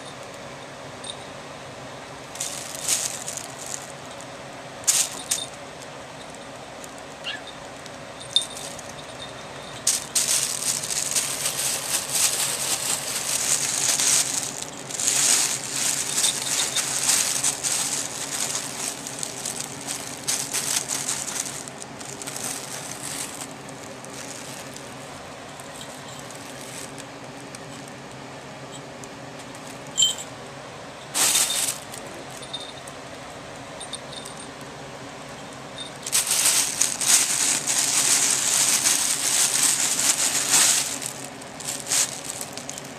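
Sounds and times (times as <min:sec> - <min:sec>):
collar bell jingling: 0:00.0 - 0:01.4, 0:04.9 - 0:05.6, 0:08.2 - 0:21.7, 0:30.0 - 0:30.3, 0:31.0 - 0:33.0, 0:33.8 - 0:34.6
plastic bag crinkling: 0:02.3 - 0:04.3, 0:04.9 - 0:05.6, 0:06.2 - 0:28.0, 0:31.1 - 0:32.7, 0:35.8 - 0:42.9.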